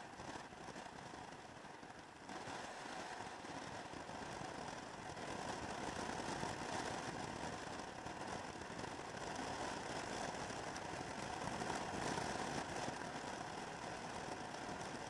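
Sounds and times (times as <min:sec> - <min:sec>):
scooter engine drone: 0:00.0 - 0:15.0
wind and road noise: 0:00.1 - 0:15.0.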